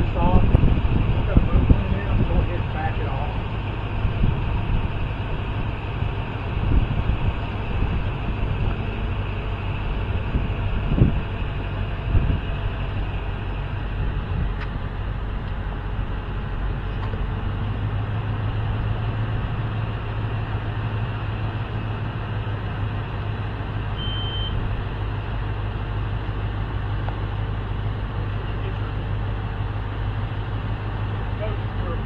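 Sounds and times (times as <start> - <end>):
engine humming steadily: 0.0 - 32.0
rushing noise: 0.0 - 32.0
short high beep: 24.0 - 24.6.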